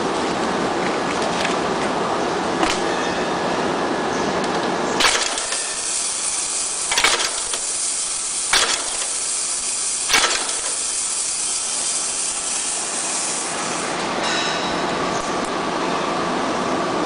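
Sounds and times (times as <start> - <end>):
rivet machine metallic strikes: 5.0 - 12.7
steady hiss: 5.0 - 14.0.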